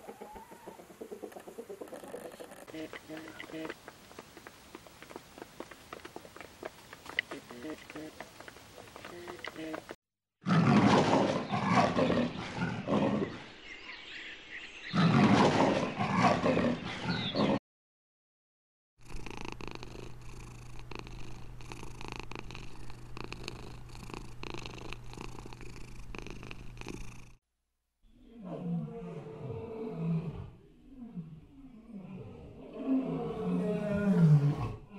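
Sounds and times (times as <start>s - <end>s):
cat purring: 19.0s - 27.4s.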